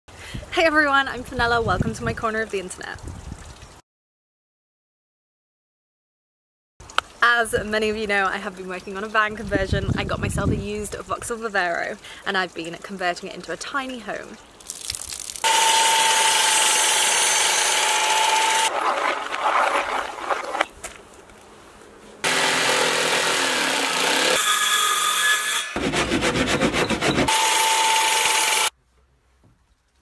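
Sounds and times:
mitre saw whining through wood: 15.4 - 20.7, 22.2 - 28.7
jigsaw rasping through plywood: 15.5 - 20.1, 22.2 - 24.4, 25.8 - 28.7.

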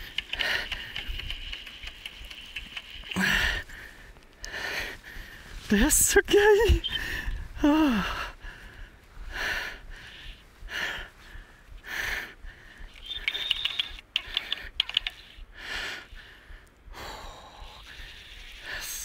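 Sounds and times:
heavy breathing: 0.0 - 1.4, 3.1 - 5.7, 6.8 - 13.0, 14.2 - 19.0
fly reel ratchet clicking: 0.0 - 3.2.

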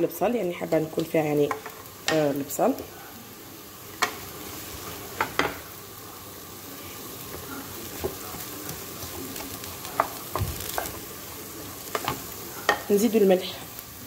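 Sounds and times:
onions sizzling in a pan: 0.0 - 14.0
wooden spoon knocking on pan: 5.2 - 5.6.

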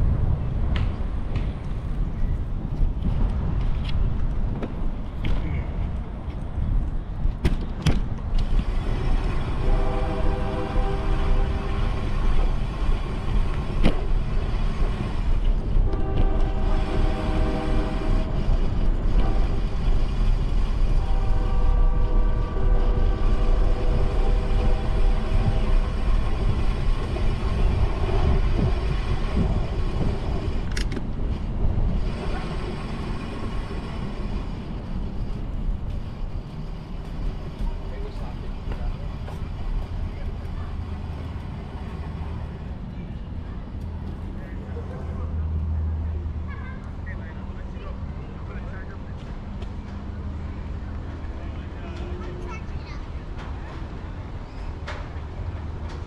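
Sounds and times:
low wind rumble: 0.0 - 56.0
train horn blasts: 9.5 - 12.3, 15.8 - 20.0, 20.7 - 26.4.

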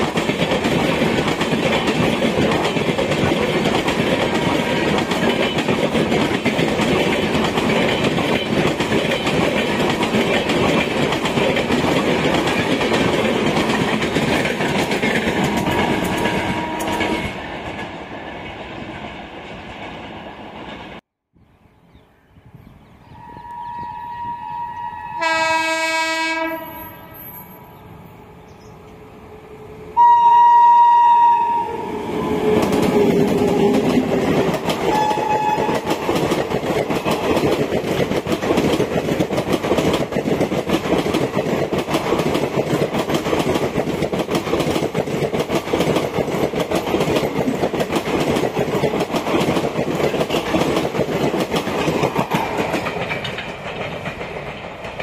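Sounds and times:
train wheels clattering over rail joints: 0.0 - 17.9, 32.5 - 55.0
locomotive horn blasts: 15.5 - 17.3, 23.2 - 27.0, 30.0 - 32.0, 34.9 - 35.8.

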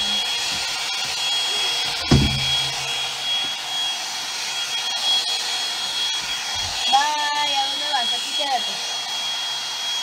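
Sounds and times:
hot-air brush whirring: 0.0 - 10.0
sharp thump: 2.0 - 2.8.

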